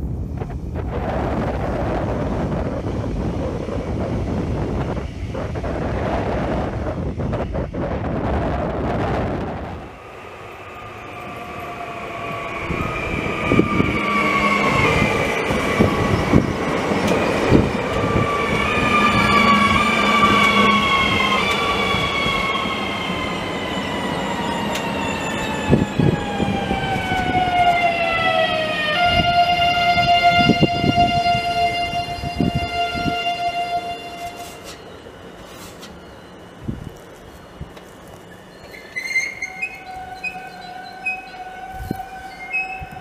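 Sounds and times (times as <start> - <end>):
electric train motor whine: 0.4 - 43.0
train wheels clicking on rails: 10.4 - 28.3, 34.2 - 36.1.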